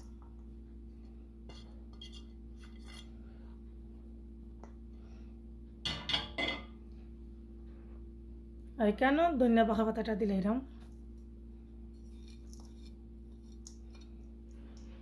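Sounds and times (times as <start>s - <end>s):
clatter of dishes: 5.9s - 6.7s.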